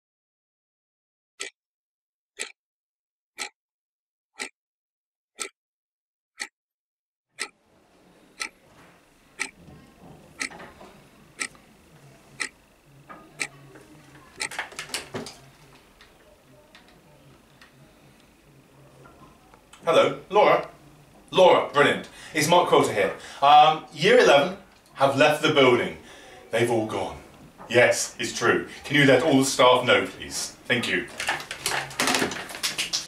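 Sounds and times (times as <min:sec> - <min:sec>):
clock ticking: 0:03.4 - 0:03.6, 0:07.4 - 0:07.6, 0:09.4 - 0:09.6, 0:10.4 - 0:10.6, 0:11.4 - 0:11.6, 0:12.4 - 0:12.6, 0:13.4 - 0:13.6, 0:14.3 - 0:14.6
office room tone: 0:07.5 - 0:33.0.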